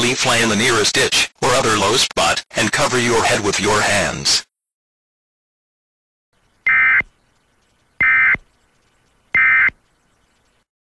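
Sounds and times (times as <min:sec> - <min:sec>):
screeching digital data tones: 0:06.6 - 0:08.5, 0:09.3 - 0:09.8.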